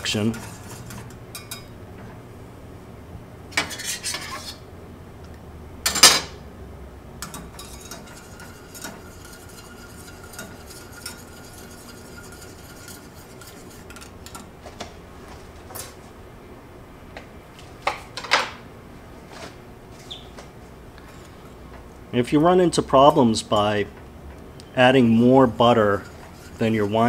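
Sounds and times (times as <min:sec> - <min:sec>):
whisk clicking against saucepan: 0:07.2 - 0:14.5, 0:25.7 - 0:27.0.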